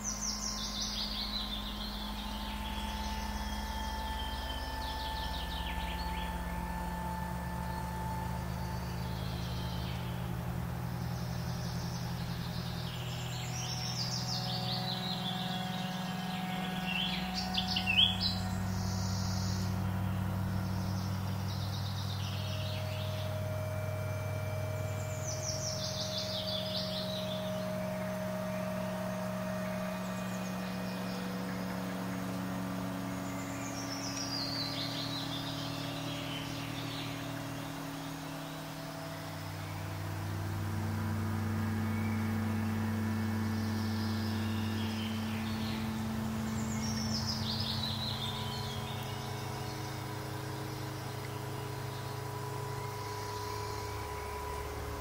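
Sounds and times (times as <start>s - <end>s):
low sustained drone chords: 0.0s - 55.0s.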